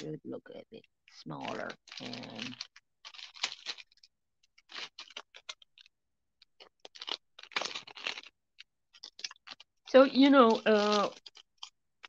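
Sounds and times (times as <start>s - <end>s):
plastic packaging crinkling: 1.0s - 12.0s.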